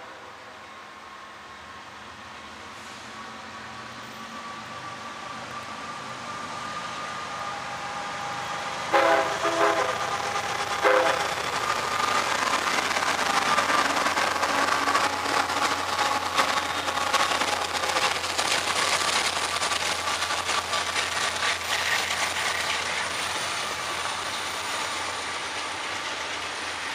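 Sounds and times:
diesel locomotive engines: 0.0 - 26.9
wheels rumbling on rail: 0.0 - 26.9
track clicks and clatter: 9.9 - 26.9.

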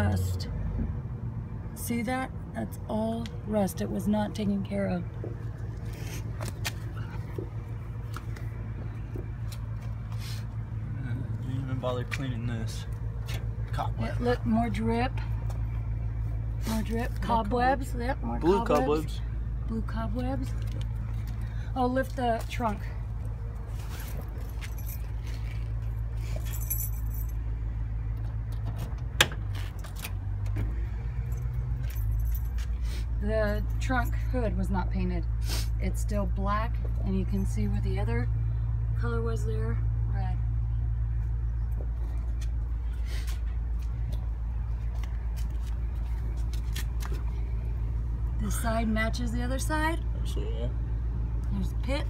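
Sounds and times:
keys jangling: 26.3 - 27.4.

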